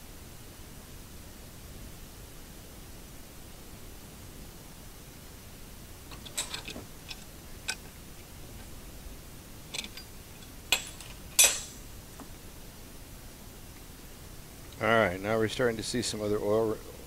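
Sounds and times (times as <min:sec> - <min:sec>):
metal tools clinking: 0:06.1 - 0:07.9, 0:09.7 - 0:11.8.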